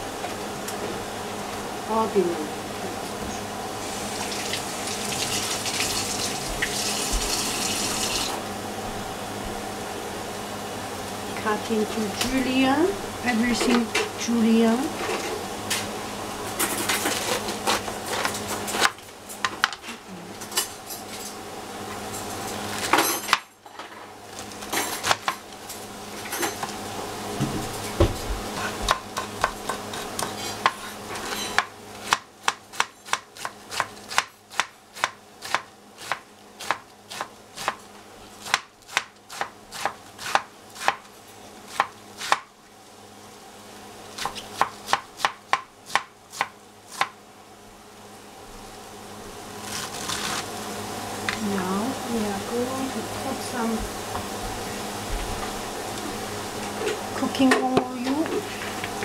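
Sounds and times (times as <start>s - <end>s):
knife chopping cabbage on board: 28.5s - 37.8s, 38.4s - 41.1s, 41.7s - 42.5s, 44.2s - 47.2s.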